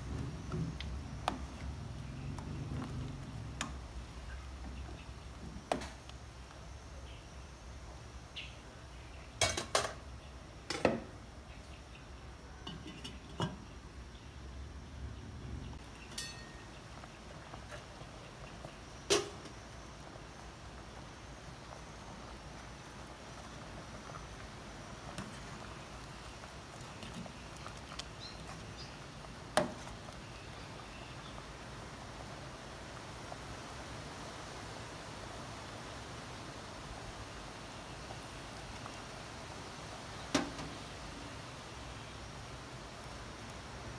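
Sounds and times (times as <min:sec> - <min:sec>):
metal ladle clinking on pot: 0:12.6 - 0:13.6, 0:16.1 - 0:16.6
pot lid clink: 0:16.1 - 0:16.6.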